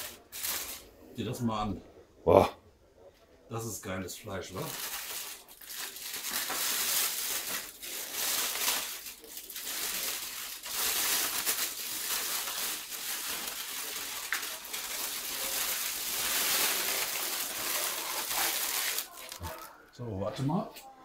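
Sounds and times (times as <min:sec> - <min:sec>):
aluminium foil crinkling: 0:00.0 - 0:01.0, 0:04.5 - 0:19.7.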